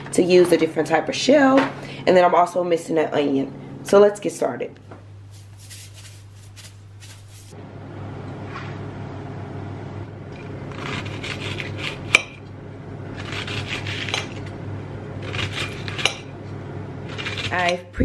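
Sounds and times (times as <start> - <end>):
knife slicing onion: 5.3 - 7.6, 10.7 - 12.4
salt shaken from canister: 5.3 - 7.6.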